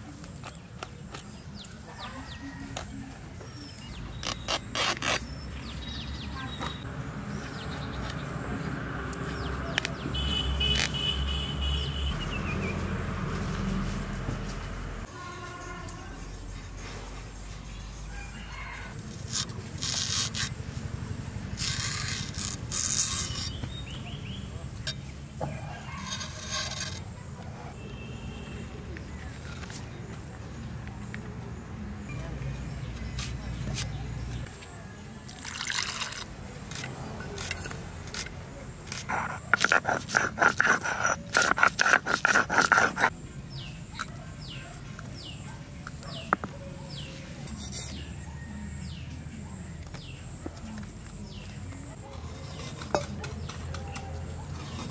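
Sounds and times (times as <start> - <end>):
leaf midrib tearing against blade: 4.0 - 5.4, 19.0 - 20.6, 21.5 - 23.6
stone roller grinding spice paste: 21.6 - 24.0, 24.9 - 27.2, 35.5 - 43.1, 52.2 - 54.9.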